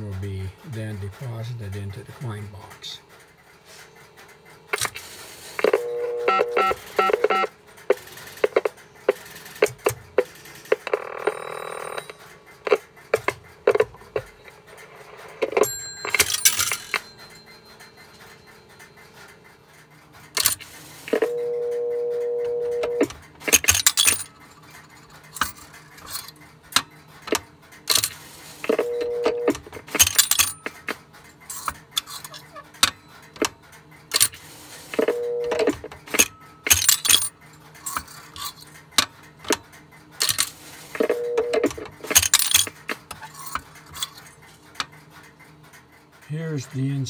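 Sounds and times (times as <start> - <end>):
short telephone beeps: 5.6 - 7.5, 28.7 - 29.5, 35.0 - 35.6, 41.1 - 41.7
steady telephone tone: 5.6 - 7.5, 10.8 - 12.2, 21.1 - 23.1, 28.7 - 29.6, 35.0 - 35.8, 41.0 - 41.8
buzzy telephone tone: 5.6 - 7.6, 10.7 - 12.8, 21.1 - 23.1, 28.7 - 29.6, 34.9 - 36.6, 41.0 - 41.8.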